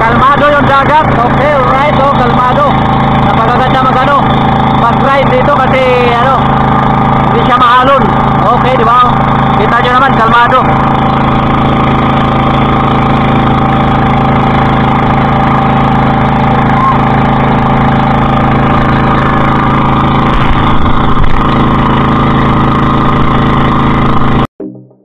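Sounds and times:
boat engine droning: 0.0s - 24.5s.

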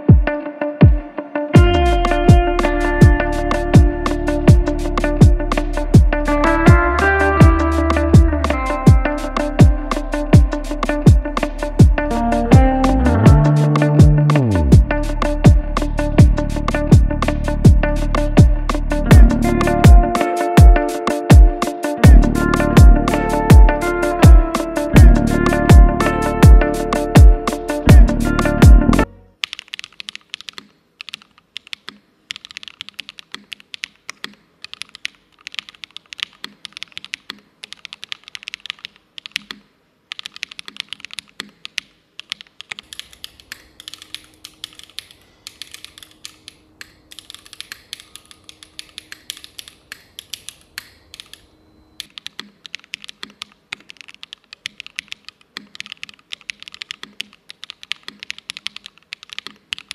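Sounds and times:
mechanical keyboard typing: 29.4s - 51.4s, 52.0s - 59.9s.

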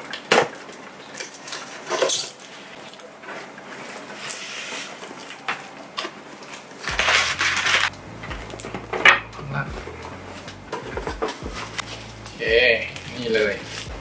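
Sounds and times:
packing material rustling: 0.7s - 8.9s.

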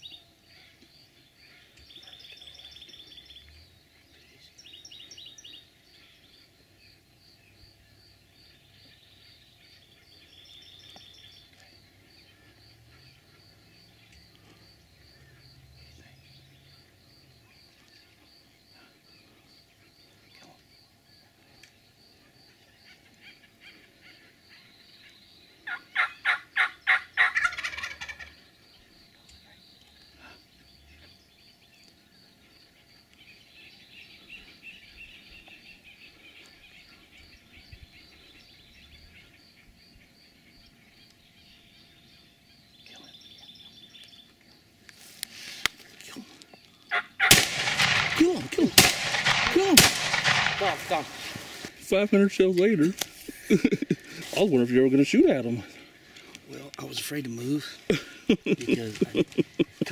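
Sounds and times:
turkey gobbling: 25.6s - 28.4s, 46.9s - 48.7s.

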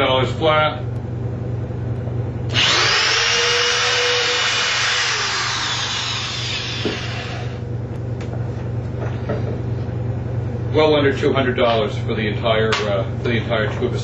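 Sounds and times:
electric drill boring into wood: 2.5s - 7.6s.

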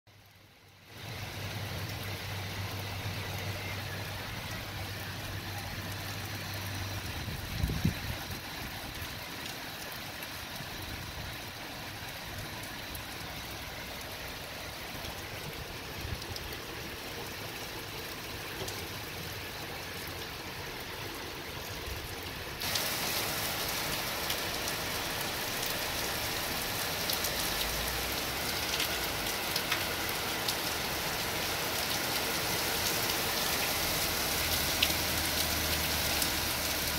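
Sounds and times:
heavy rain falling: 0.8s - 36.9s.

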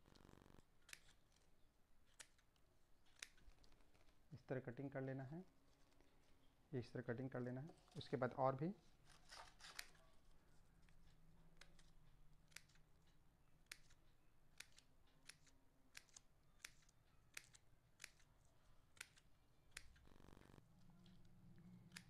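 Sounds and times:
scissors snipping paper: 0.8s - 3.6s, 9.1s - 10.0s, 10.8s - 13.0s, 13.6s - 14.0s, 14.6s - 20.0s.

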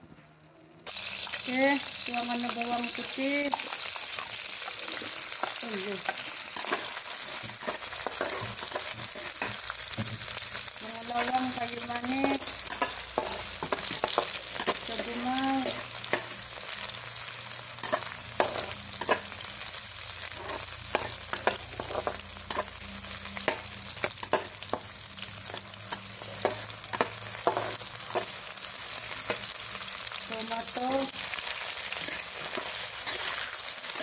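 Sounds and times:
spices sizzling in hot oil: 0.8s - 34.0s
spatula scraping a wok: 4.7s - 17.0s, 17.8s - 29.7s, 31.2s - 34.0s.

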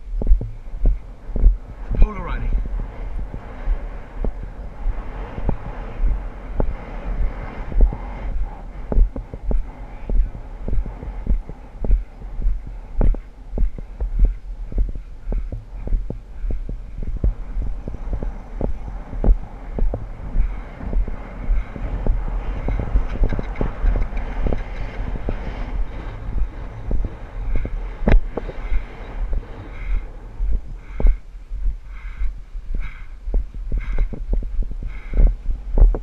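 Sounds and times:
wind on microphone: 0.0s - 36.0s
horse hoofbeats on grass: 8.9s - 29.5s.

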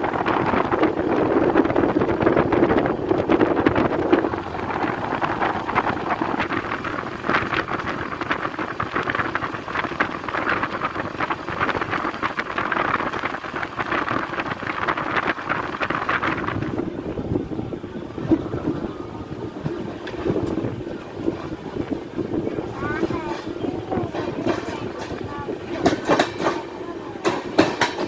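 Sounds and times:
wind rushing over microphone: 0.0s - 28.0s
train wheels clattering on rails: 19.3s - 28.0s.

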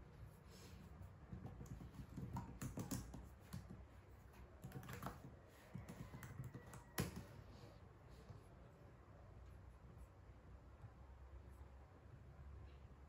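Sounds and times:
laptop keyboard typing: 1.3s - 3.9s, 4.5s - 7.4s.

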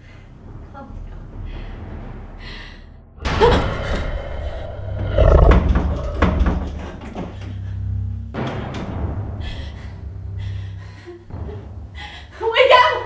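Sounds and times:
deep rumble: 0.0s - 12.6s
bangs and knocks: 3.2s - 7.6s.

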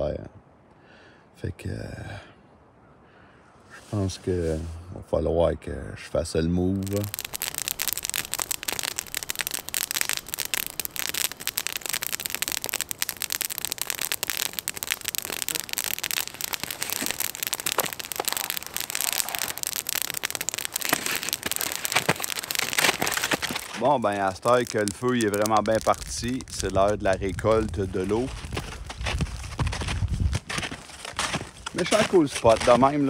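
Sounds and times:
campfire crackling and popping: 6.8s - 33.0s.

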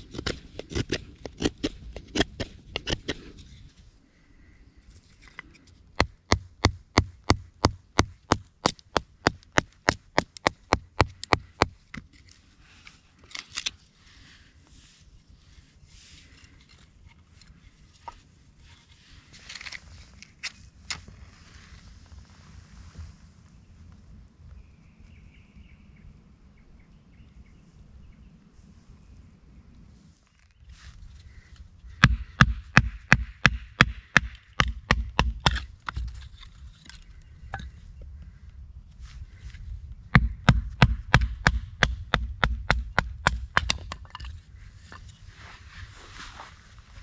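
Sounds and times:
wind rumble on microphone: 17.4s - 32.7s, 34.3s - 47.0s.

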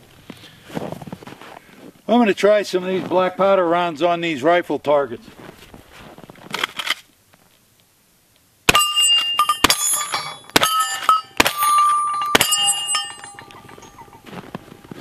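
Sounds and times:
steel target ringing: 8.7s - 15.0s
rifle shots: 9.6s - 13.0s.

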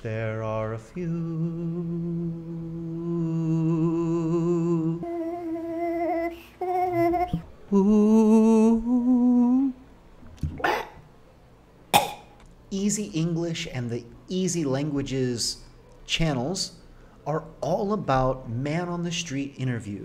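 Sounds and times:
man humming: 1.0s - 9.8s.

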